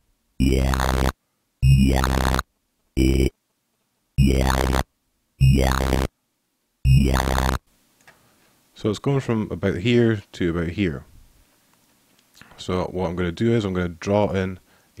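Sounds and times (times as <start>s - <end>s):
wobbling dubstep bass synth: 0.4s - 2.4s, 3.0s - 3.3s, 4.2s - 4.8s, 5.4s - 6.1s, 6.9s - 7.6s.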